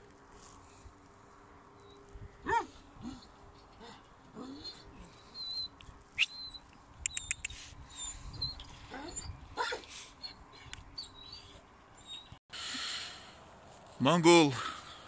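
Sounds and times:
small birds chirping: 4.7s - 9.4s, 10.2s - 12.4s.

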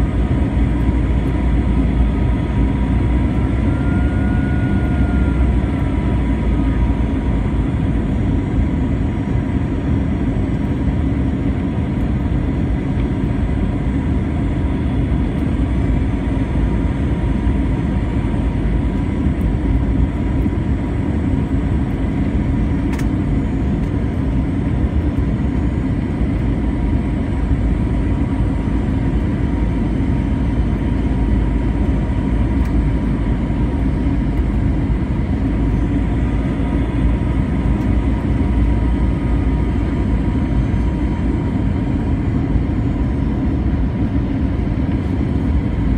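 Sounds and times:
faint steady whine: 0.0s - 45.9s
jet airliner cabin roar: 0.0s - 45.9s.

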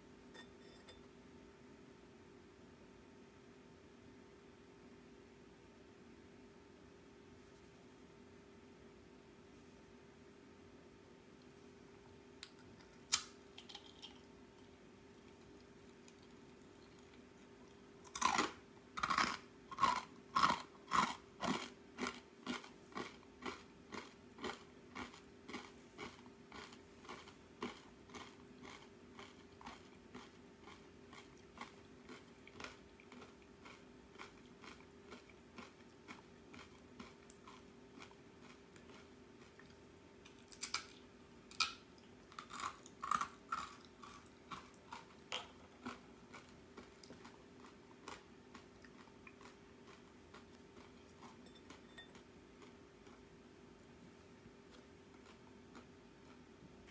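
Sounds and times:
chewing crisp rice crackers: 12.4s - 53.3s, 54.7s - 56.9s.

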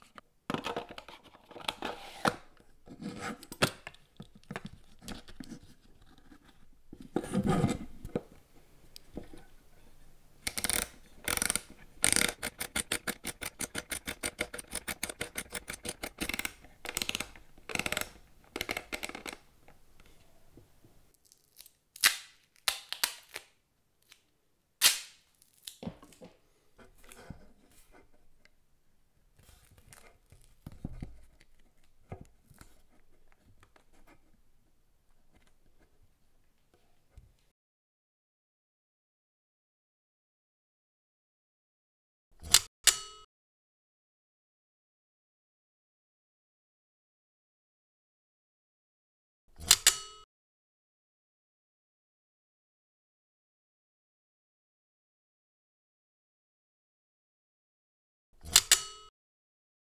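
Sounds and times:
camera winding knob clicking: 10.5s - 19.4s.

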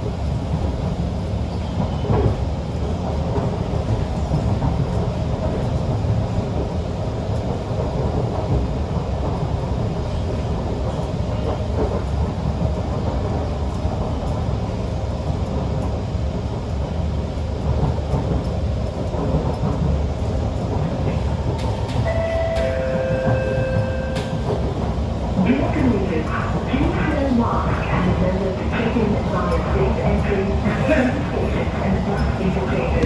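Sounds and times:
train wheels rumbling: 0.0s - 33.0s
brief tone: 22.1s - 24.3s.

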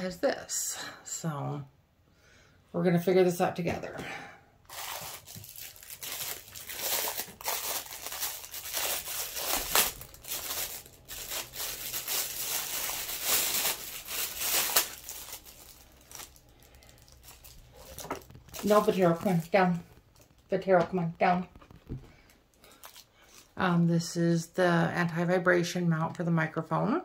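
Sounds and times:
plastic packaging crinkling: 4.7s - 20.5s, 21.5s - 23.6s.

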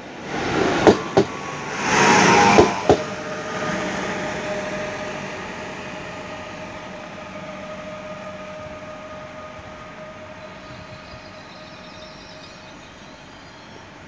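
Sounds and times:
electric train passing and whining: 0.0s - 14.0s
train wheel clicks over rail joints: 0.8s - 1.4s.

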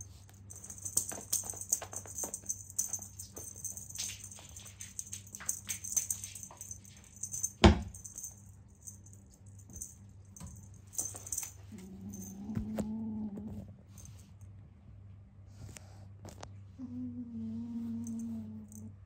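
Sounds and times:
cat toy rattling and jingling: 0.0s - 12.8s.

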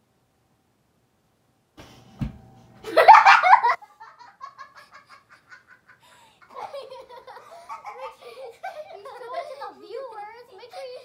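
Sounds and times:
children laughing: 2.8s - 11.0s.

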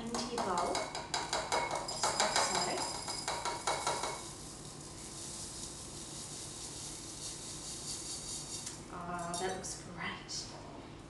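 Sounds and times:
cereal pouring into ceramic bowl: 3.8s - 8.8s.

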